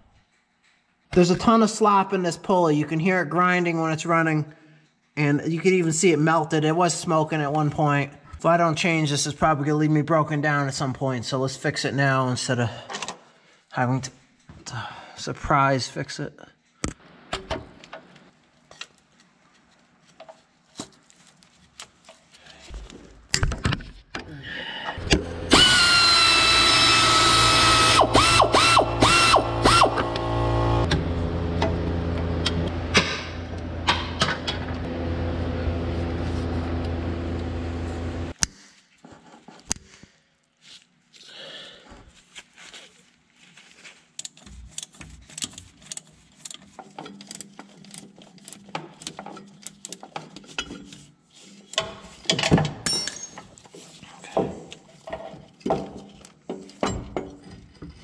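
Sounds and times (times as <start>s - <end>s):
cordless power tool whining: 25.0s - 38.3s
tools and metal parts clinking: 44.2s - 53.8s, 54.5s - 58.0s.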